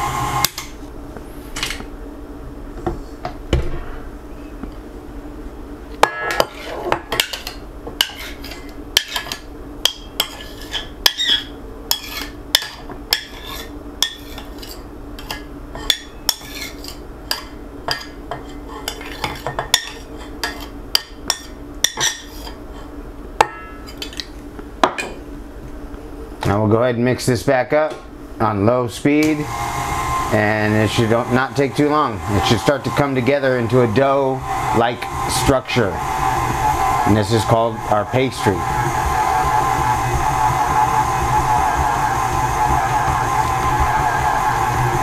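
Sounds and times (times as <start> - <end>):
steady low hum: 0.0 - 45.0
utensil scraping a bowl: 6.4 - 7.4, 8.0 - 9.4, 10.2 - 20.8, 22.0 - 22.9.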